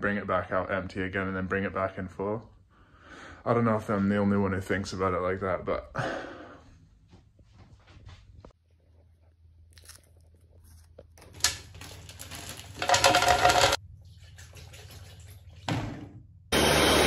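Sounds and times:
frozen berries rattling: 11.2 - 13.8.

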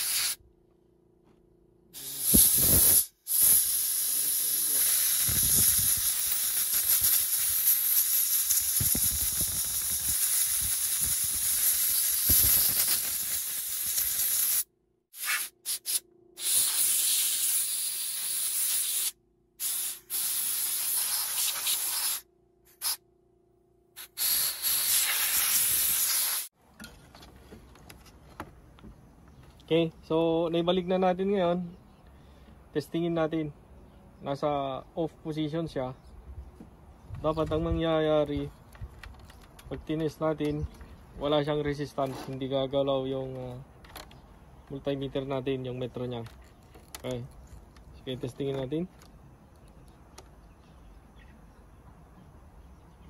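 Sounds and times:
aerosol spray can hissing: 0.0 - 0.4, 2.0 - 23.0, 24.0 - 26.5.

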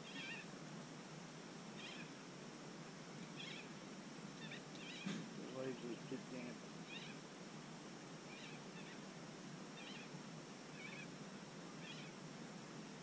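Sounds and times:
faint steady hiss: 0.0 - 13.0
bird chirping: 1.8 - 2.1, 3.2 - 3.7, 4.4 - 5.3, 6.8 - 7.2, 9.8 - 10.1, 10.7 - 11.1, 11.8 - 12.2.

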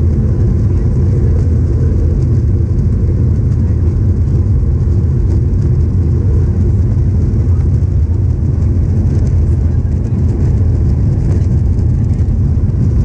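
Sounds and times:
aircraft cabin rumble: 0.0 - 13.0.

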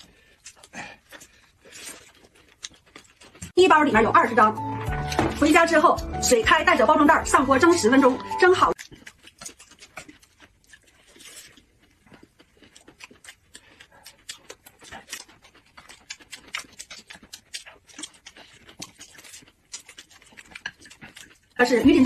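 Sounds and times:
people chewing crunchy food: 0.0 - 3.6, 4.6 - 6.2, 6.8 - 22.0.

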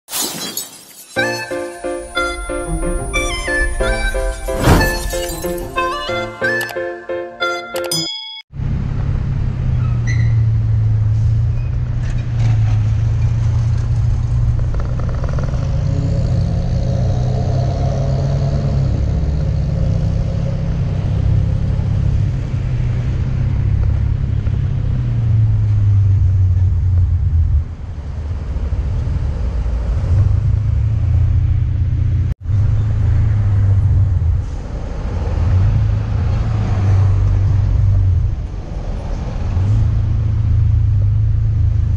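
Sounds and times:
motorcycle engine rumble: 8.6 - 17.4.

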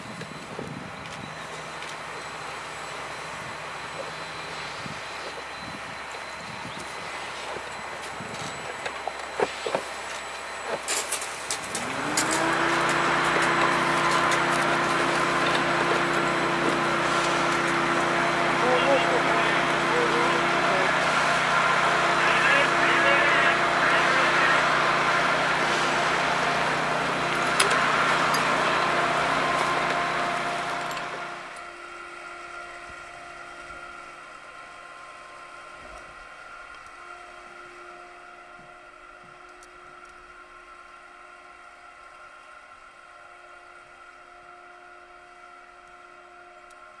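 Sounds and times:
fire engine pump humming: 0.0 - 47.0.

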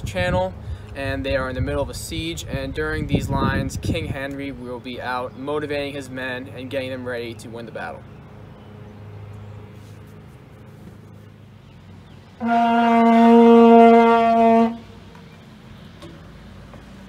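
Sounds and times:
plastic horn long note: 12.4 - 15.0.

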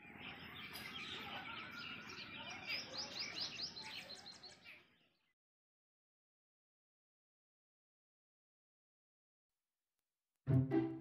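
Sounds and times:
small birds chirping: 0.0 - 5.4.

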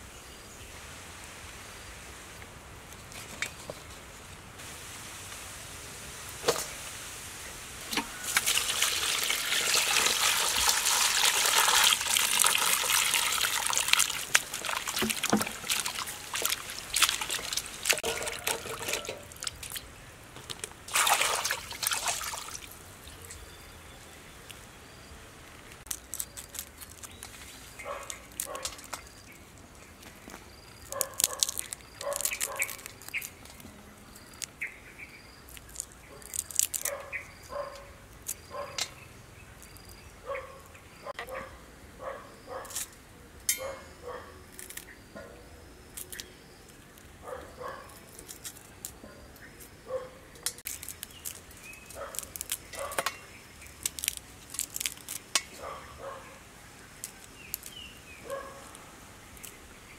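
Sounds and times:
wet produce rustling: 7.9 - 23.0, 25.6 - 33.6, 53.6 - 55.8
water pouring into a metal bowl: 8.2 - 19.6, 20.9 - 22.7.

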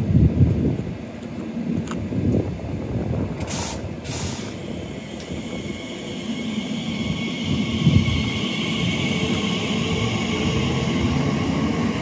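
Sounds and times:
train rumbling: 0.0 - 12.0
rail hiss: 3.3 - 12.0
short hisses: 3.5 - 7.8.

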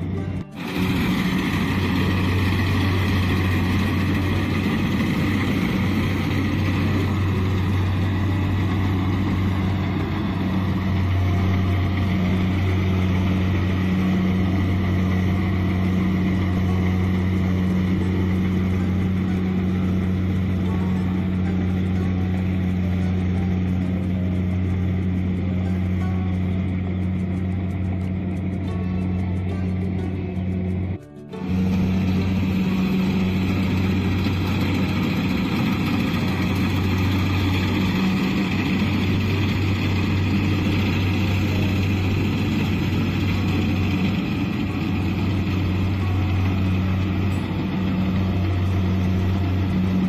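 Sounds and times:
combine harvester engine drone: 0.0 - 50.0.

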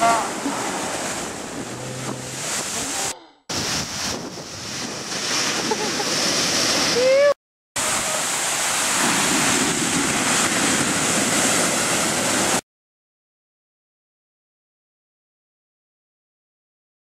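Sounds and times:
waves crashing and rushing: 0.0 - 12.6.

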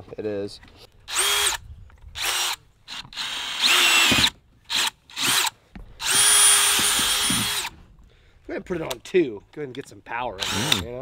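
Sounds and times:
cordless drill whirring: 1.1 - 7.8, 10.4 - 11.0.

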